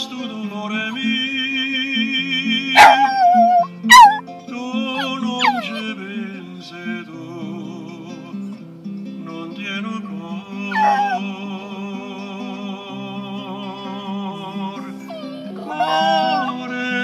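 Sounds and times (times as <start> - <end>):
recorded song: 0.0 - 17.0
puppy howling: 2.8 - 4.2, 4.9 - 5.9, 10.7 - 11.3, 14.7 - 16.8.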